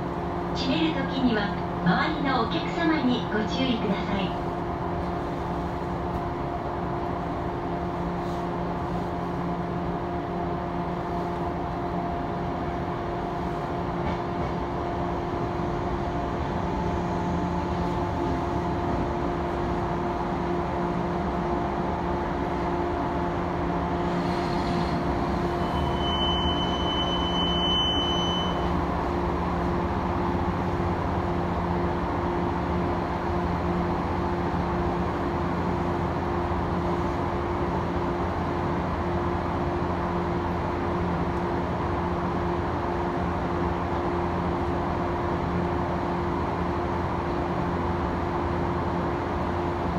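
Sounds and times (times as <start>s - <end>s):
electric train equipment hum: 0.0s - 49.9s
thin high beep: 25.8s - 28.7s.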